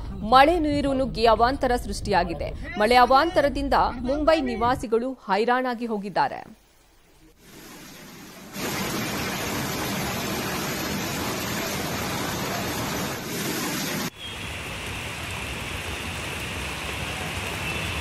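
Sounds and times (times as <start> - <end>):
heavy rain downpour: 7.3 - 18.0
floodwater rushing: 7.4 - 18.0.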